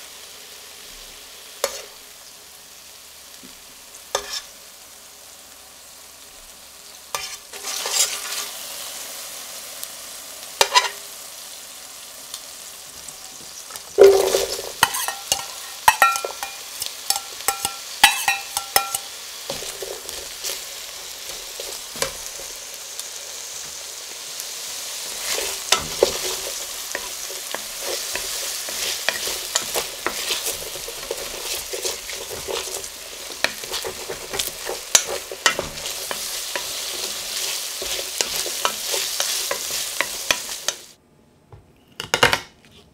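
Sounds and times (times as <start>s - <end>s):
onion sizzling in a pot: 0.0s - 41.0s
utensil scraping a pan: 4.2s - 4.5s, 7.1s - 8.6s, 10.6s - 11.0s, 14.0s - 20.6s, 25.1s - 40.8s.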